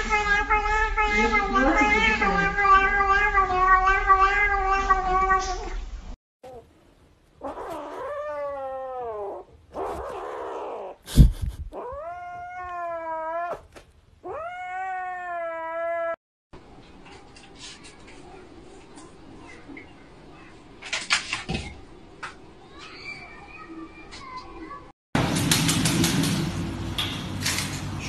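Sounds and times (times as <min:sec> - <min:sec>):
cat yowling: 0:00.0 - 0:05.7, 0:07.4 - 0:11.0, 0:11.8 - 0:16.2
kitten crying: 0:00.0 - 0:05.7, 0:14.2 - 0:16.2.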